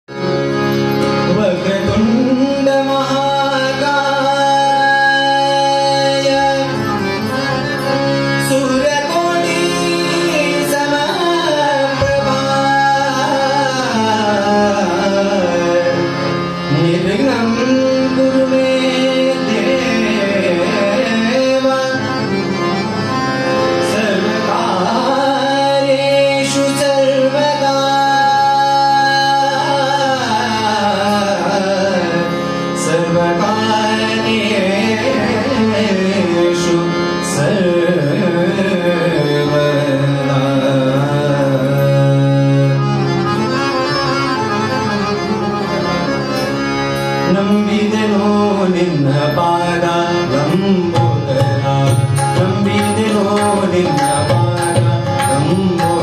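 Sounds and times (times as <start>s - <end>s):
harmonium: 0.0s - 56.0s
tabla playing: 0.1s - 56.0s.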